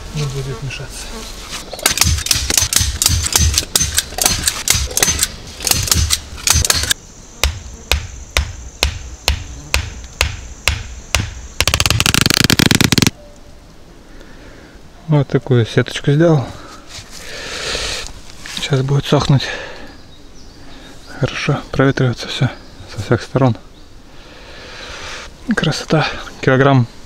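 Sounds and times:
fast rattle: 0:01.8 - 0:07.0, 0:11.6 - 0:13.1
sharp knocks of hand tool: 0:01.8 - 0:11.4.

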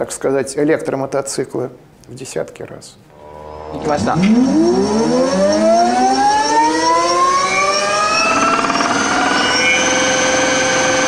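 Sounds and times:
electric motor whine: 0:03.2 - 0:11.0.

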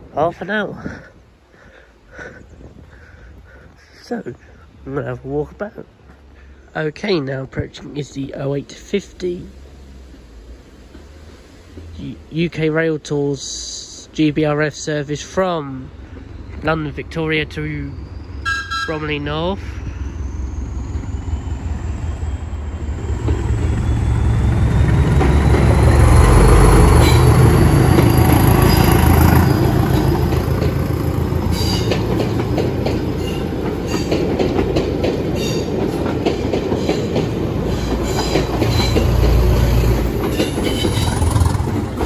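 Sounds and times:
diesel train engine throbbing: 0:14.8 - 0:42.0
train wheels clicking over rail joints: 0:15.2 - 0:42.0.

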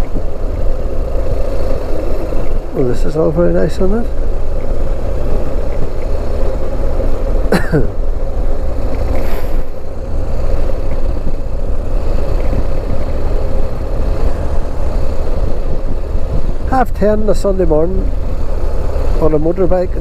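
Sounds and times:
motorcycle engine cruising: 0:00.0 - 0:20.0
wind rumble on microphone: 0:08.1 - 0:20.0.

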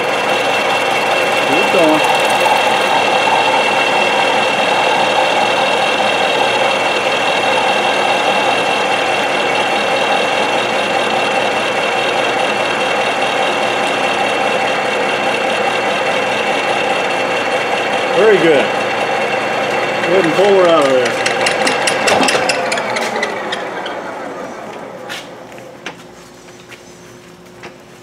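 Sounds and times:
high whine: 0:00.0 - 0:13.6
milling machine cutting metal: 0:00.0 - 0:25.4.

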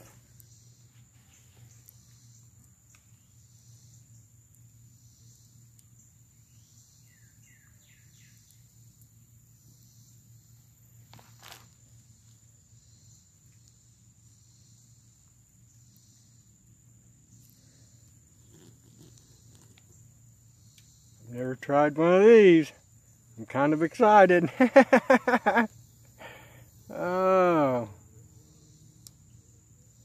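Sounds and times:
high insect drone: 0:00.0 - 0:30.0
rustling: 0:11.0 - 0:12.4, 0:18.3 - 0:20.0.

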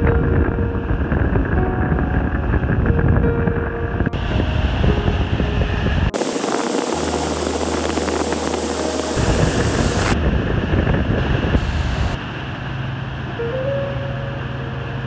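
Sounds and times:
wind rumbling on microphone: 0:00.0 - 0:13.9
boat engine hum: 0:00.0 - 0:15.0
rushing water: 0:06.1 - 0:10.3.

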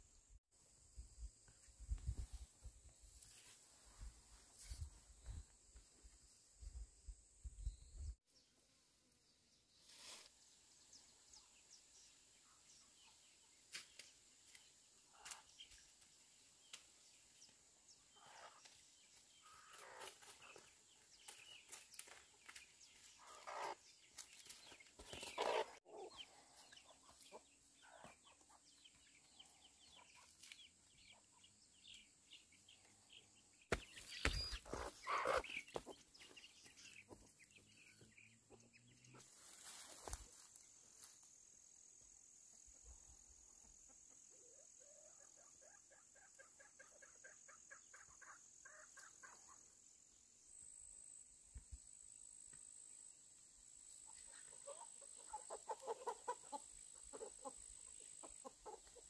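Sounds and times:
chickens clucking: 0:22.0 - 0:23.8, 0:24.6 - 0:31.4, 0:33.7 - 0:40.4, 0:43.5 - 0:49.6, 0:54.0 - 0:59.0.

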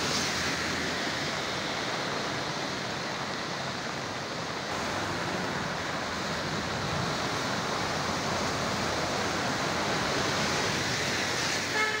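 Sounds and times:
vehicles splashing through water: 0:00.0 - 0:12.0
floodwater rushing: 0:04.5 - 0:12.0.

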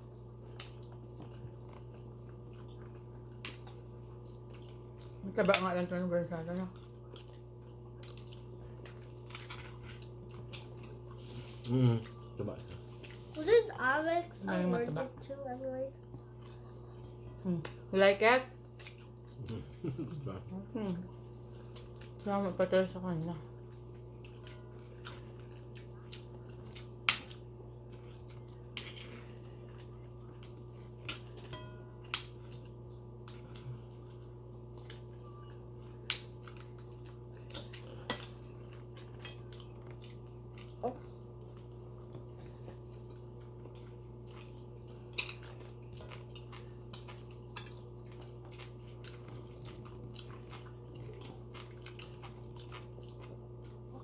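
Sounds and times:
steady low hum: 0:00.0 - 0:54.0.

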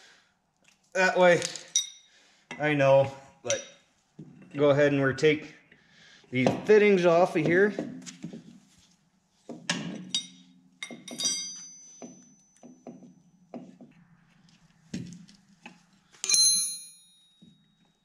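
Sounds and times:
wrench and metal fittings clinking: 0:01.4 - 0:02.6, 0:10.0 - 0:12.8
sharp metal clinks: 0:10.1 - 0:12.7, 0:16.2 - 0:17.7.

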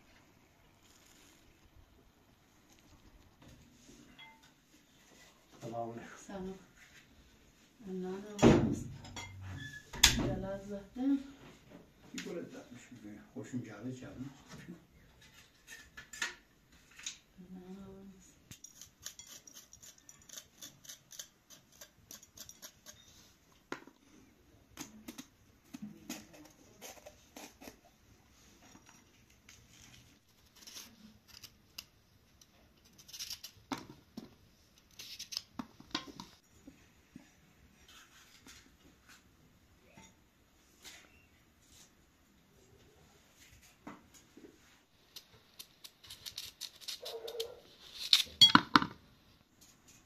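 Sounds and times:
pepper being cut crunching: 0:45.1 - 0:48.4.

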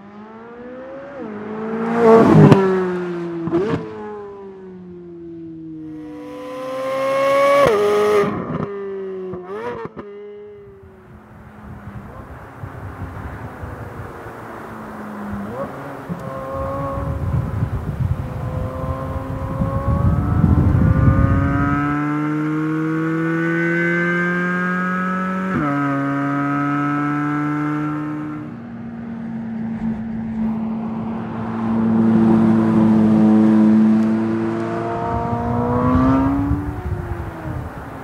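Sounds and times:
car engine revving through gears: 0:00.0 - 0:04.2, 0:06.2 - 0:08.7, 0:14.9 - 0:28.5, 0:29.6 - 0:38.0.

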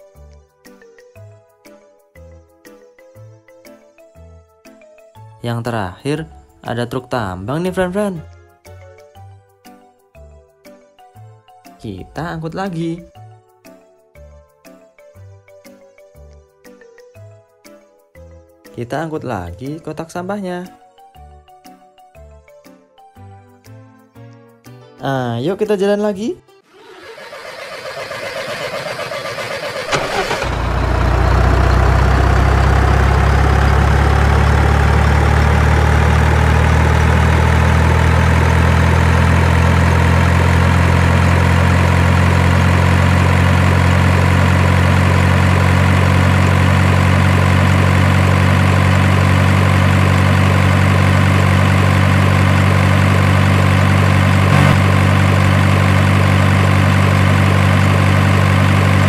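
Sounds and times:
truck engine idling: 0:26.7 - 0:59.0.

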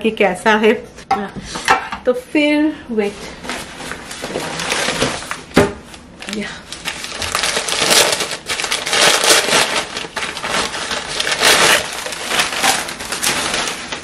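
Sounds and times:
packing paper crinkling: 0:03.4 - 0:14.0.

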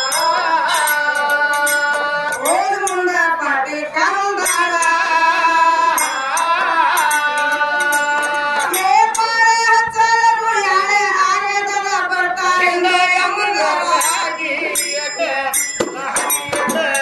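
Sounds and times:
hand cymbals clashing: 0:00.0 - 0:03.4, 0:04.0 - 0:09.6, 0:13.8 - 0:17.0
woman singing folk song: 0:02.4 - 0:05.8, 0:08.7 - 0:14.3.

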